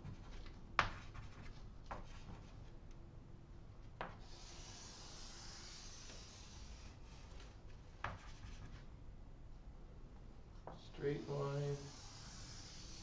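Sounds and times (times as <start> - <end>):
chalk scratching on chalkboard: 4.1 - 8.9, 11.1 - 13.0.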